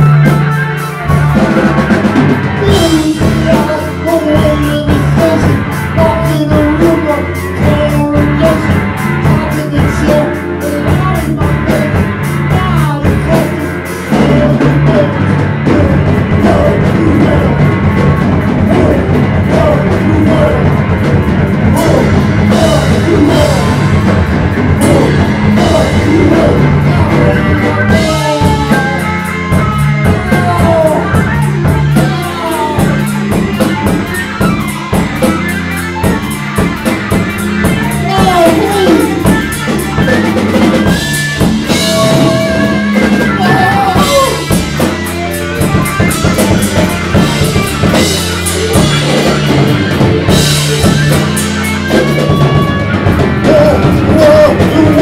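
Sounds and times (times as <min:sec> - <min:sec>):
drum kit: 0:00.0 - 0:55.0
electric guitar: 0:00.0 - 0:55.0
person singing into microphone: 0:02.5 - 0:17.7, 0:18.6 - 0:20.8, 0:21.6 - 0:24.0, 0:24.8 - 0:34.0, 0:37.7 - 0:44.6, 0:52.0 - 0:55.0.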